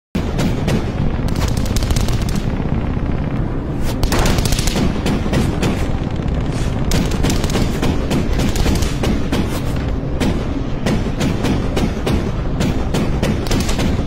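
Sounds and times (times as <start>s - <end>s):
machine-gun fire: 0.2s - 3.2s, 3.8s - 14.0s
low engine drone: 0.4s - 13.3s.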